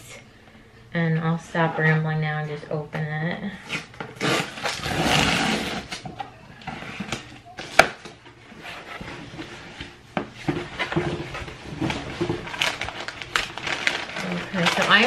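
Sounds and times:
cardboard box tearing: 3.7 - 6.0.

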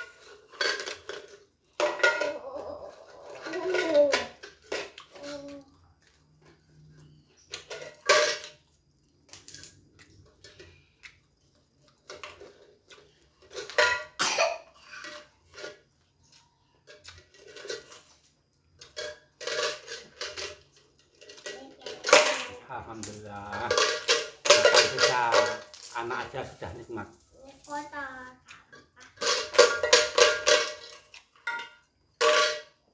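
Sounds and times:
coins clinking and rattling: 17.2 - 27.9, 29.1 - 31.6.

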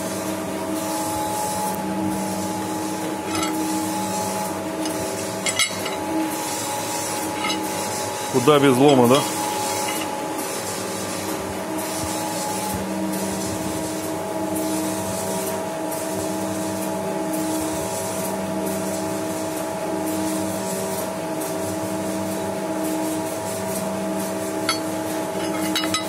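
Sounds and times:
machine humming: 0.0 - 11.9.

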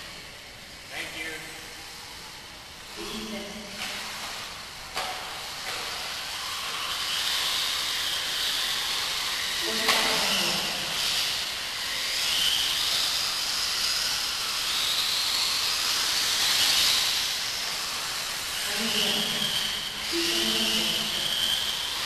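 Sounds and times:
toy car motor whine: 0.0 - 22.0.

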